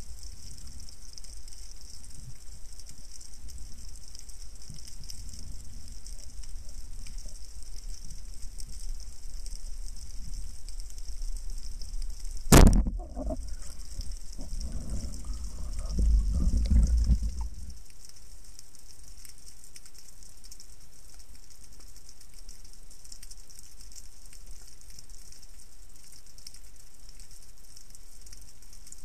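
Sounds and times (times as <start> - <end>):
low rumbling of water: 0.0 - 23.2
steady underwater hiss: 0.0 - 29.0
speargun firing underwater: 12.5 - 13.7.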